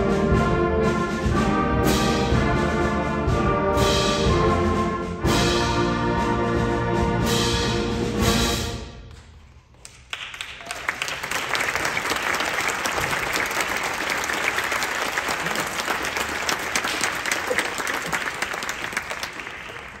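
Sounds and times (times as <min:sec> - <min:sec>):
audience applause: 0:09.7 - 0:20.0.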